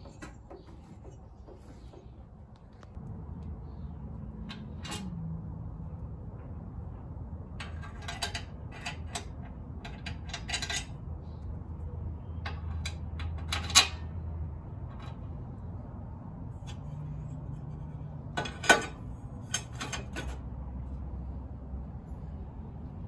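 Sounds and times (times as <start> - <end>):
metal parts clinking together: 4.5 - 5.1, 7.6 - 11.0, 12.4 - 14.1, 18.3 - 20.4.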